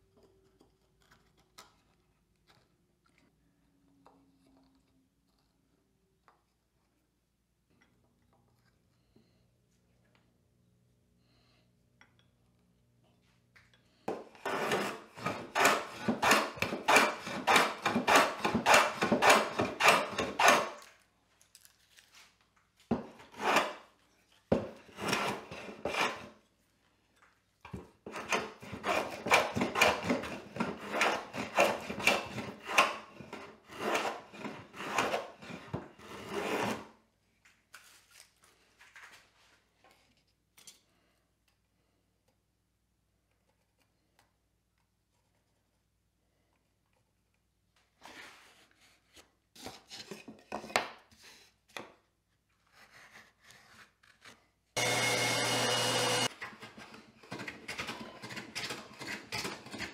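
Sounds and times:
plane scraping wood: 14.1s - 20.8s, 23.0s - 23.8s, 24.6s - 26.4s, 28.0s - 36.9s.

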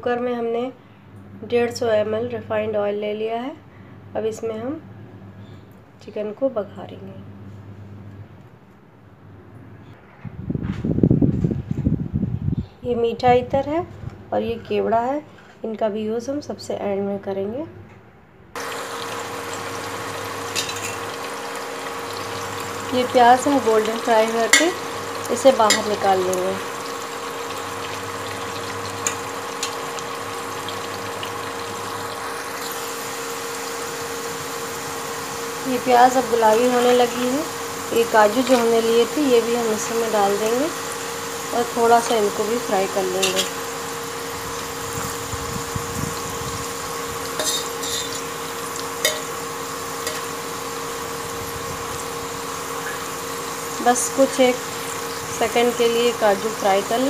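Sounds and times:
onions sizzling in hot oil: 18.6s - 57.0s
steady hum: 18.6s - 57.0s
spatula scraping a pot: 47.4s - 48.3s.

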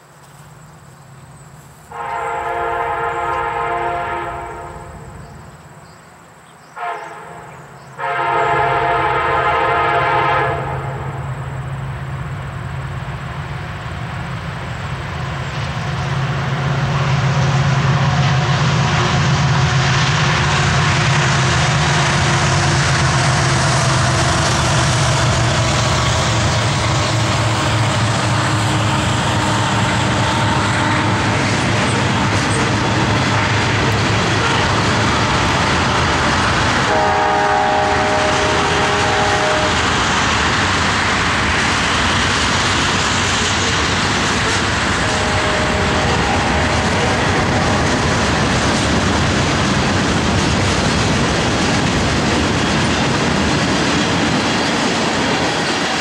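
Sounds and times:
freight train rumble: 0.0s - 56.0s
locomotive horn blasts: 1.9s - 5.2s, 6.8s - 11.3s, 27.0s - 35.7s, 36.8s - 40.0s, 44.4s - 48.4s.

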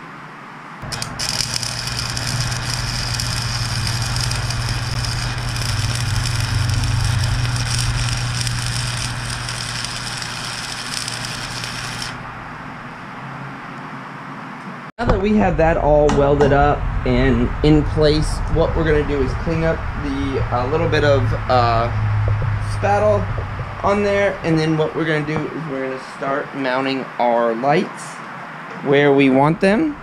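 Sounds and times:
welding arc crackling sizzle: 0.8s - 12.9s
low hum: 0.8s - 13.6s, 15.0s - 26.6s.

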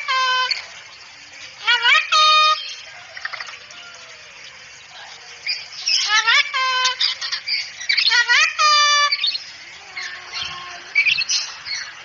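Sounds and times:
cockatoo calling: 0.0s - 0.8s, 1.6s - 4.3s, 5.0s - 11.9s.

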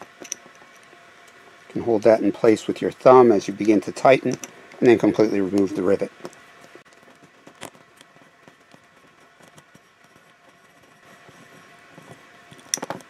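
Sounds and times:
chain clinking: 0.2s - 0.9s
small metal clicks of chain tool: 0.2s - 0.9s, 4.2s - 4.5s.

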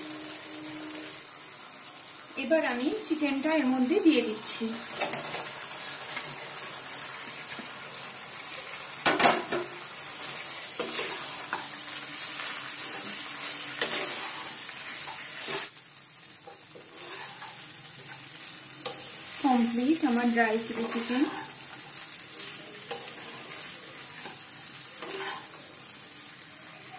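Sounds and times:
food sizzling in a wok: 0.0s - 26.9s
metal spatula scraping the pan: 9.4s - 15.7s, 16.4s - 25.8s.

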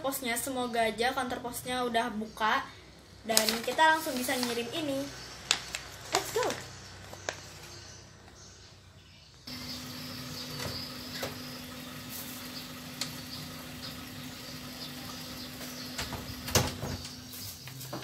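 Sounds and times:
steady low hum: 9.5s - 17.4s.

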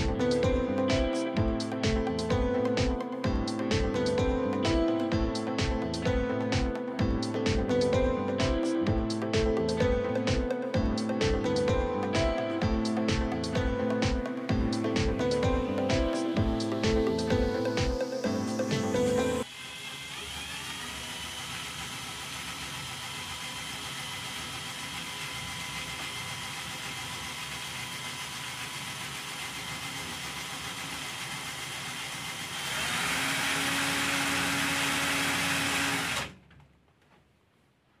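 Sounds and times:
small electric motor whining: 19.4s - 36.3s.

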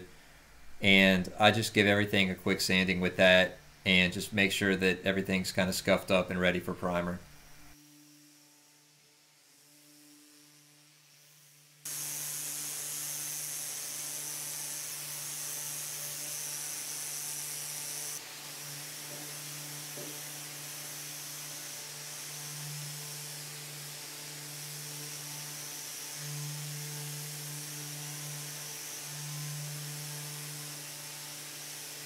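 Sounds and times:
pad sander hissing and humming: 5.8s - 32.0s.

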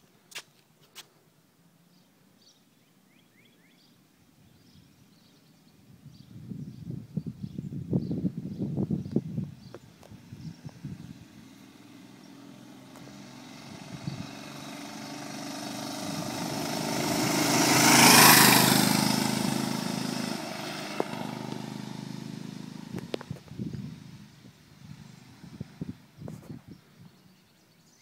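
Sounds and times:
scooter engine passing by: 10.2s - 26.2s.

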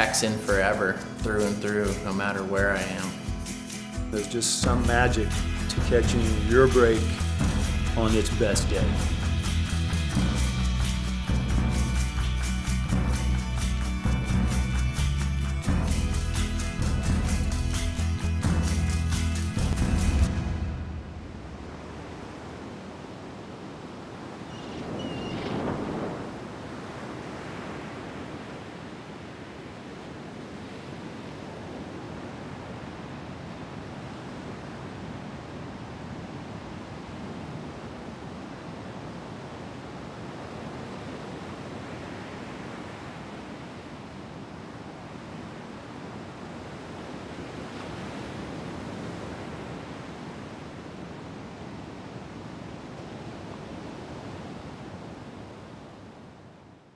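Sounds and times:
waves breaking on beach: 21.2s - 56.9s.

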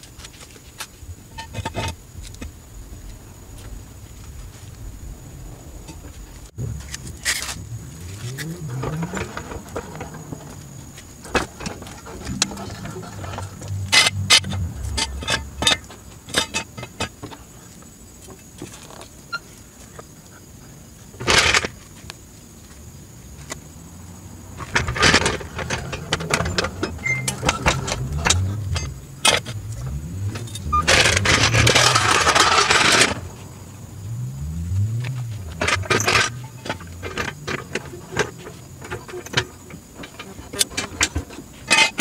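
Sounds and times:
rasping noise: 6.6s - 16.5s
metal clicks and clanks of jack: 24.6s - 33.2s, 35.0s - 42.0s.

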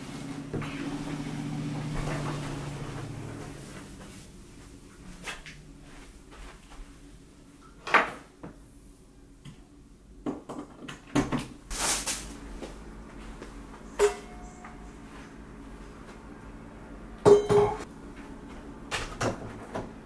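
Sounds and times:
rustling: 11.7s - 12.6s
faint ringing tone: 13.9s - 15.1s.

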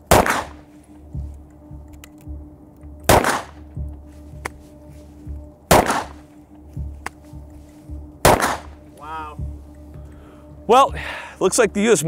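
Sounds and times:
pistol shots with echo: 0.0s - 0.6s, 3.1s - 3.6s, 5.7s - 6.2s, 8.2s - 8.8s
background music with low beat: 0.0s - 12.0s.

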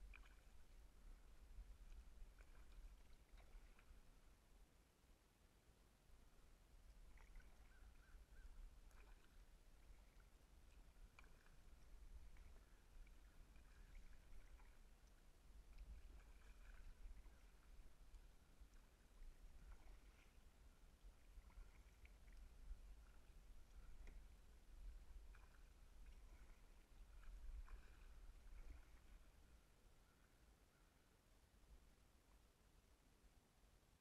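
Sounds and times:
kayak paddle splashing: 0.0s - 4.6s, 6.1s - 30.4s.

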